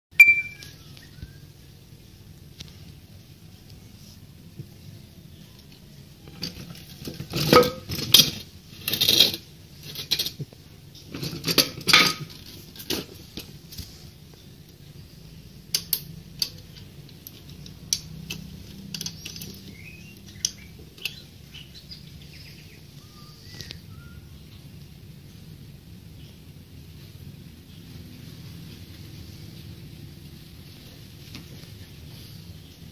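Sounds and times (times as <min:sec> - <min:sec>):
metal clanking and rattling: 0:11.1 - 0:13.5.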